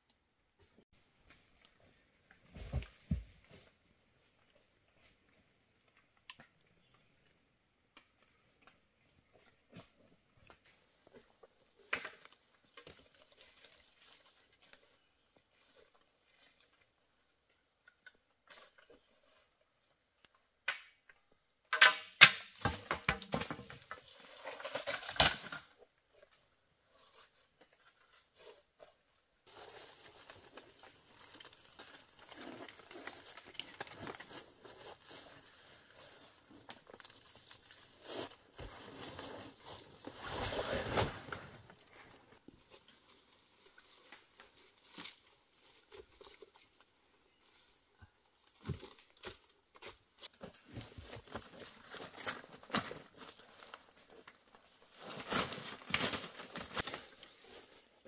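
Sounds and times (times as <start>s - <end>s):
dry plant material crackling: 29.5s - 45.8s.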